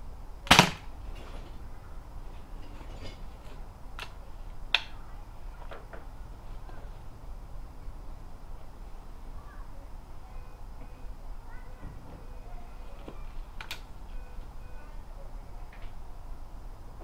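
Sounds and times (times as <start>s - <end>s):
air rifle firing: 0.4s - 0.9s.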